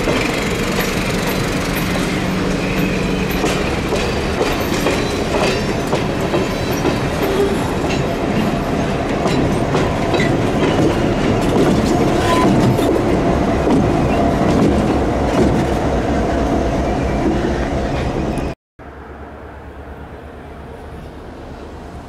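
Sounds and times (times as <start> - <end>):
train wheels clattering over rail joints: 0.0 - 15.9.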